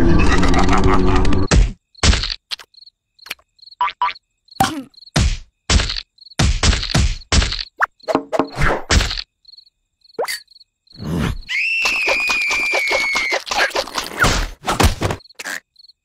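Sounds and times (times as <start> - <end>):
high cricket-like chirps: 1.8 - 13.4, 15.2 - 16.0
high squeal with flutter: 11.2 - 13.8.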